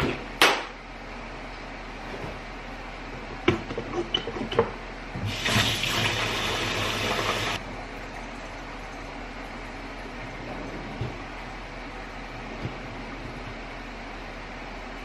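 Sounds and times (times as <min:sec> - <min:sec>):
kitchen faucet running: 0:05.2 - 0:07.6.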